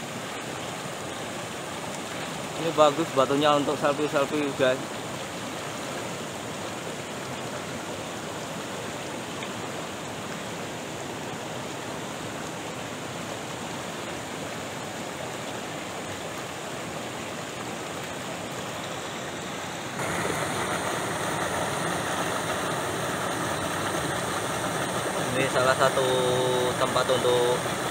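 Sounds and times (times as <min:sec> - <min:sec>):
river rushing over stones: 0:00.0 - 0:27.9
small cascade pouring: 0:19.9 - 0:27.9.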